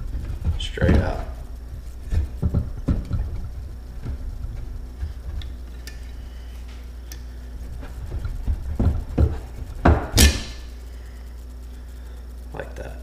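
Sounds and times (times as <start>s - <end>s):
sharp metal clanks: 10.1s - 10.7s.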